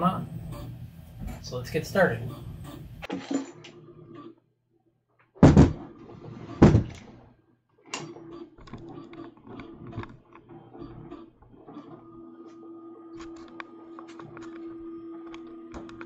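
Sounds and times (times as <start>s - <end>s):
heavy thumps on wood: 5.4s - 6.0s, 6.6s - 7.0s.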